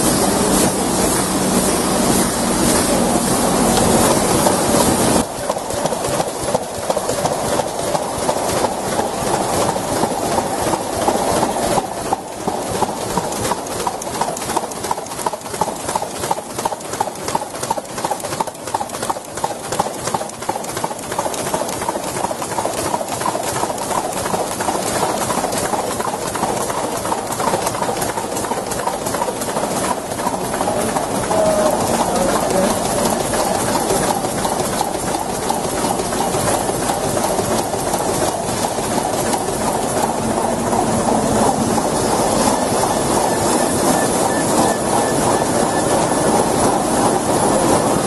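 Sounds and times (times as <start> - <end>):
folding machine clacking: 27.2 - 48.0.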